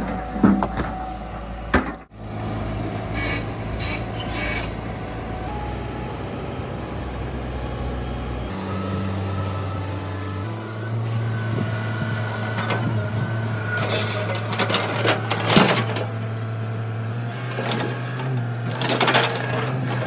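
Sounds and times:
excavator diesel engines running: 0.0s - 20.0s
buckets scraping and clanking: 12.4s - 16.2s.

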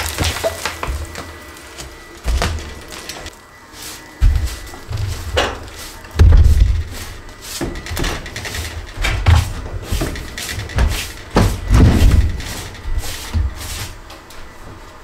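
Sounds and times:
heavy wooden thumps and knocks: 6.2s - 6.9s, 7.6s - 12.5s.

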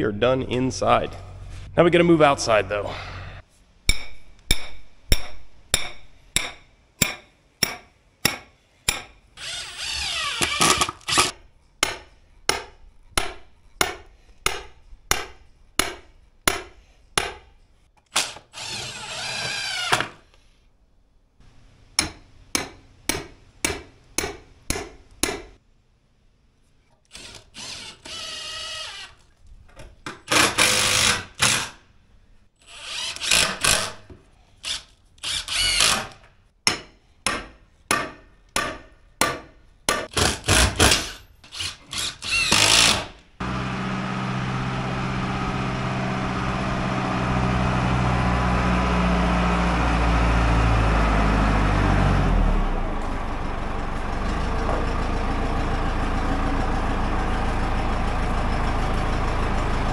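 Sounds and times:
hammer striking steel stakes: 3.9s - 9.2s, 10.4s - 17.6s, 22.0s - 25.6s, 36.6s - 41.2s
cordless drill driving screws: 9.4s - 11.3s, 18.2s - 20.2s, 27.1s - 29.2s, 30.3s - 31.7s, 32.6s - 34.0s, 34.6s - 36.1s, 40.2s - 43.1s.

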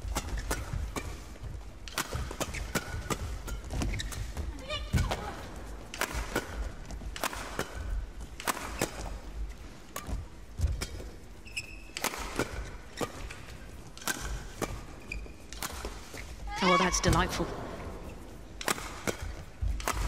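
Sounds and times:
rackets hitting shuttlecock: 0.1s - 5.2s, 5.9s - 9.2s, 11.9s - 16.1s, 18.5s - 20.0s.

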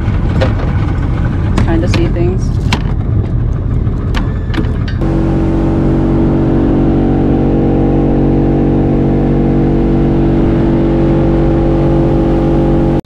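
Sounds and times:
boat engine droning: 3.6s - 13.0s.

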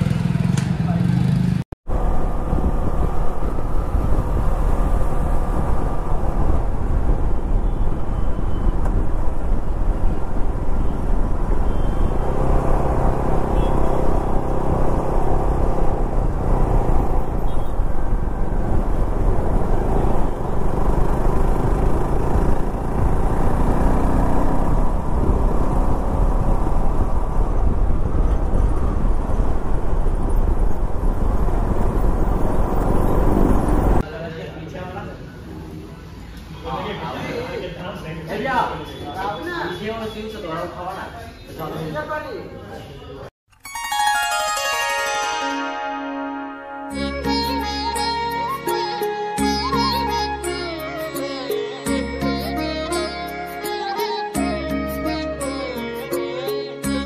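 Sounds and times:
wind buffeting microphone: 1.9s - 11.6s, 14.2s - 34.0s
motorcycle engine running: 18.2s - 29.6s.

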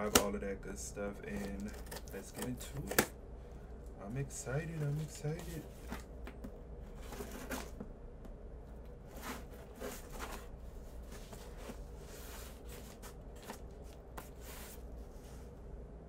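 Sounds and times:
scissors cutting cardboard box: 1.3s - 3.0s
cardboard and tape rustling: 4.5s - 7.9s, 8.9s - 15.4s.

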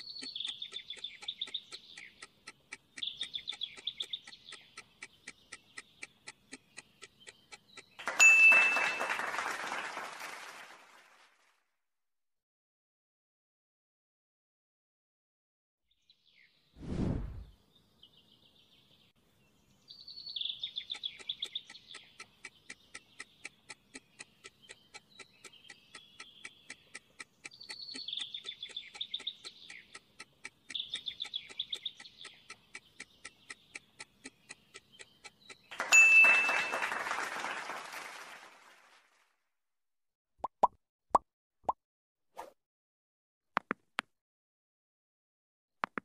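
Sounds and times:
clock-like ticking: 0.0s - 8.2s, 20.4s - 36.3s
birdsong chirps: 0.0s - 9.2s, 15.9s - 16.8s, 17.4s - 37.2s
short whoosh: 16.8s - 17.6s.

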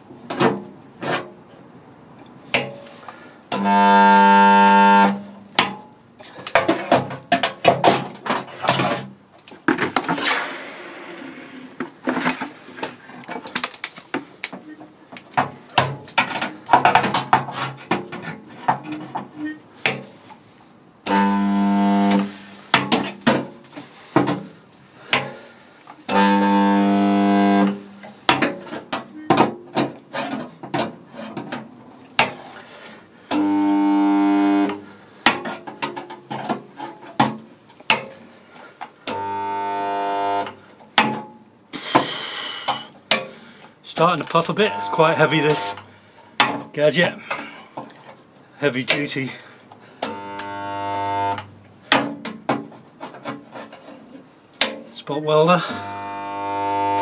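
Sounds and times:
spot welder buzzing: 3.6s - 5.2s, 21.1s - 22.8s, 26.1s - 28.0s, 33.3s - 34.8s, 39.1s - 40.6s, 44.4s - 45.8s, 50.1s - 51.5s, 55.7s - 57.0s.

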